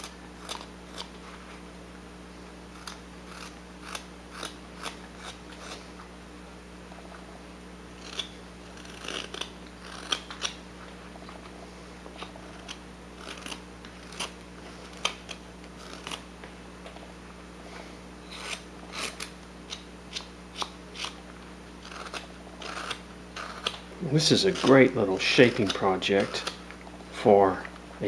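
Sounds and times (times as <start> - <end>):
knife slicing wood shavings: 21.8 - 26.6.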